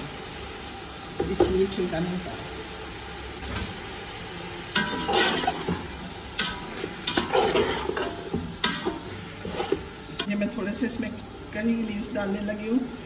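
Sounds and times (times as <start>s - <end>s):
food sizzling in oil: 0.0s - 13.0s
metal spoon scraping a pot: 4.8s - 5.8s, 6.4s - 9.9s.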